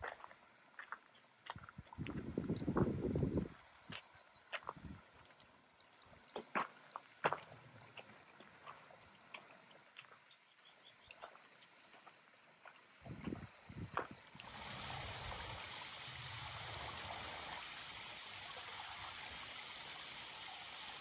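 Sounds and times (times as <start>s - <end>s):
creek water trickling: 0.0s - 21.0s
footsteps on rocky trail: 6.2s - 9.4s.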